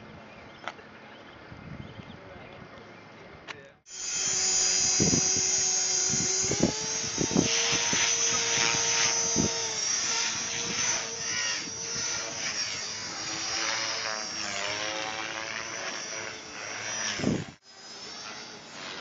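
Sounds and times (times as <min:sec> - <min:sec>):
model helicopter motor and rotor whine: 0:03.9 - 0:19.0.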